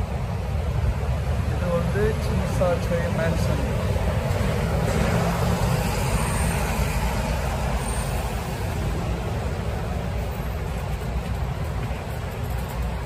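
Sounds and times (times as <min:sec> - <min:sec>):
city street traffic drone: 0:00.0 - 0:13.0.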